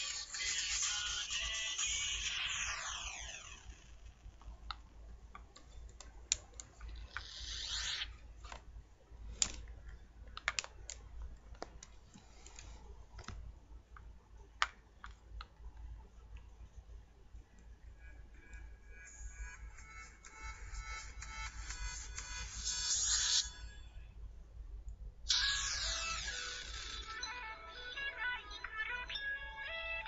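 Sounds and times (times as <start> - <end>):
music: 0.0 - 2.8, 18.9 - 23.7, 25.6 - 30.0.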